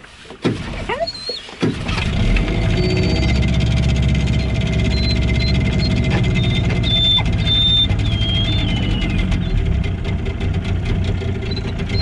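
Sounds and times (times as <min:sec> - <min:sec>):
outboard motor pull-start: 0:00.0 - 0:12.0
outboard motor running: 0:00.0 - 0:12.0
dog whining: 0:00.8 - 0:01.6, 0:02.7 - 0:03.6, 0:04.2 - 0:09.7, 0:11.4 - 0:12.0.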